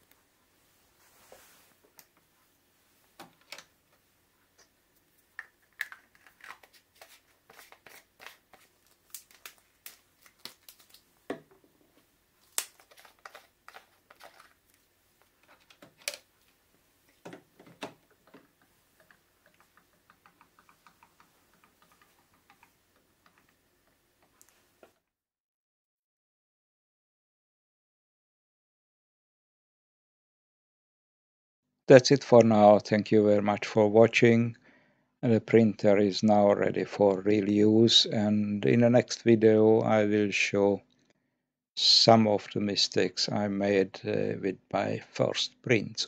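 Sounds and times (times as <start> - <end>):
plastic bottles clicking and tapping: 5.4 - 9.6, 12.6 - 14.5
small evenly spaced ticks: 18.1 - 24.6.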